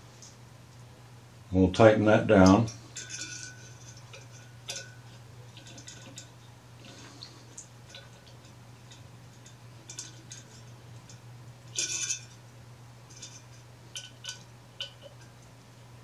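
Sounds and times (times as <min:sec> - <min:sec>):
steady low hum: 0:00.0 - 0:16.0
metal clatter: 0:02.4 - 0:07.2, 0:07.8 - 0:12.4, 0:13.1 - 0:15.4.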